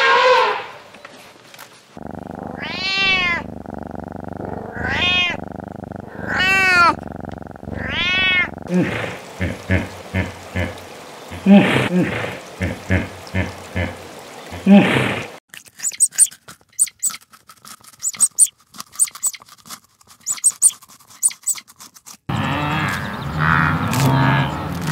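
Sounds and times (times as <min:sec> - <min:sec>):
hippopotamus grunting calls: 0:02.0 - 0:14.0
cat meowing: 0:02.6 - 0:03.5, 0:04.6 - 0:05.5, 0:06.1 - 0:07.0, 0:07.7 - 0:08.7.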